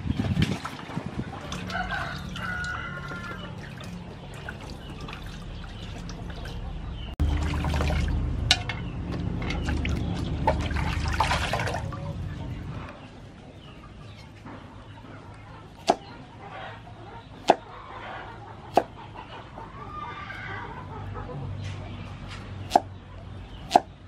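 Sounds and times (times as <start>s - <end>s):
water sloshing in metal basin: 0.0s - 12.7s.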